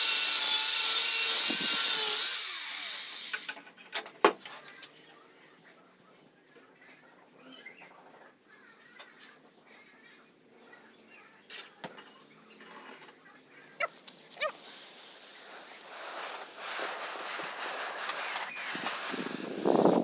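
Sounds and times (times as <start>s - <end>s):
paint spray gun hissing: 0.0s - 3.4s, 13.8s - 20.0s.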